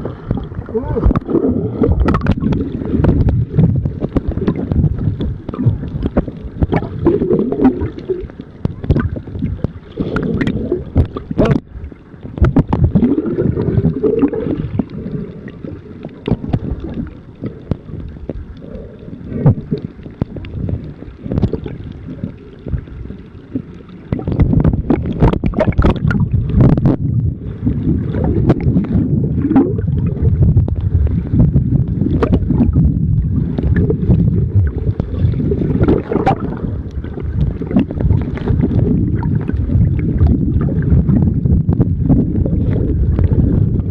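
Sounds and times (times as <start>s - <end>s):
knocks and splashes: 0.0s - 8.0s, 12.3s - 14.9s, 23.6s - 27.1s, 34.9s - 41.3s
muffled water sloshing and gurgling: 0.0s - 43.9s.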